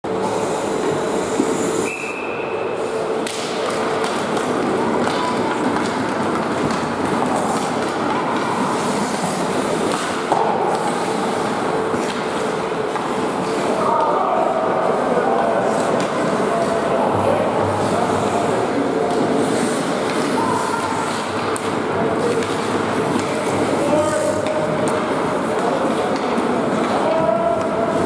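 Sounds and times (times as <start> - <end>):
hockey sticks and puck clacking: 3.2 - 14.2, 15.2 - 17.0, 17.8 - 28.0
skate blades scraping ice: 3.6 - 12.4, 17.8 - 21.4.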